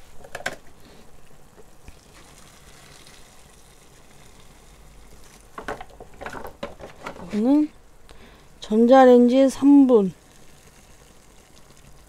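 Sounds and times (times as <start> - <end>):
hot water trickling into a cup: 1.1 - 6.7, 10.0 - 12.0.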